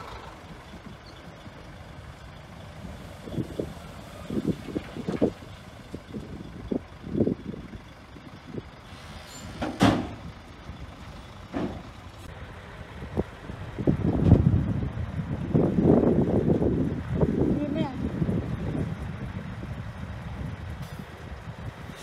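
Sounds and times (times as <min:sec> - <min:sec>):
machinery engine rumble: 0:00.0 - 0:22.0
machinery clunks and knocks: 0:09.4 - 0:10.3, 0:11.4 - 0:12.0.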